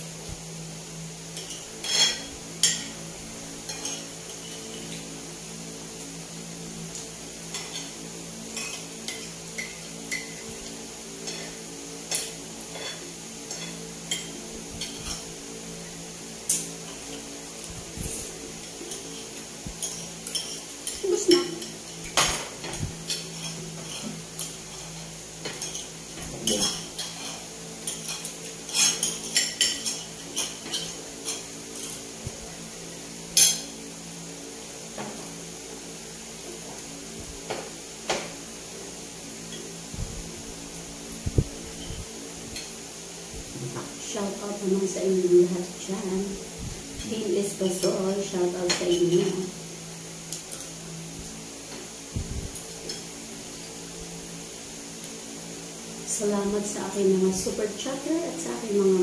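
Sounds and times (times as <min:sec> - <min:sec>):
steady low hum: 0:00.0 - 0:59.0
cutlery clinking on dishes: 0:01.4 - 0:03.0, 0:03.6 - 0:05.0, 0:07.5 - 0:15.4, 0:18.9 - 0:32.1.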